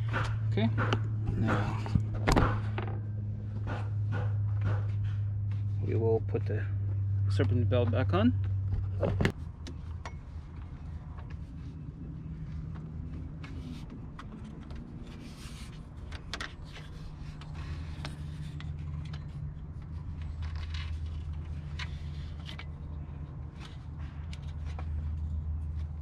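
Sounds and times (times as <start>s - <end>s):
low hum: 0.0s - 26.0s
belt scraping and clicking: 13.4s - 25.0s.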